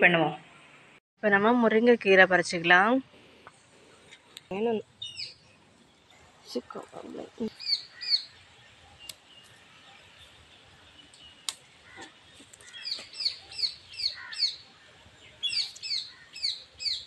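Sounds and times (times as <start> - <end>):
bird chirping: 3.5 - 17.0.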